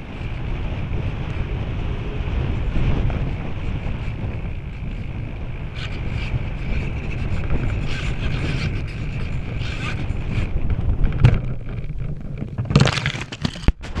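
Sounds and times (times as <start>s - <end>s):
wind buffeting microphone: 0.0s - 14.0s
rustling handling noise: 11.8s - 14.0s.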